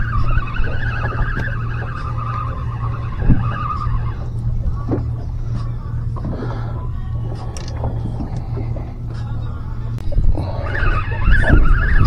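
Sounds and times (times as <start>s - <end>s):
fishing reel whining: 0.0s - 4.8s, 10.3s - 12.0s
constant low rumble: 0.0s - 12.0s.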